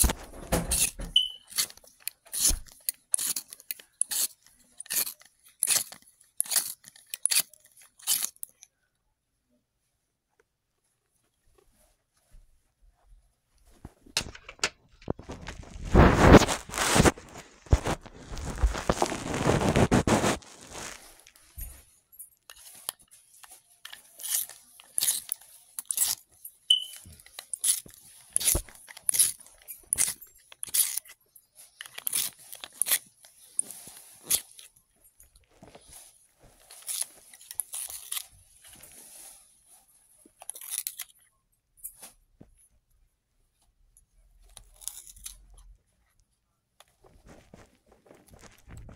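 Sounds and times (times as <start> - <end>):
short crunchy scrapes: 0.0 - 1.7, 15.1 - 21.7
dense crinkling rustle: 10.8 - 41.2, 44.5 - 48.9.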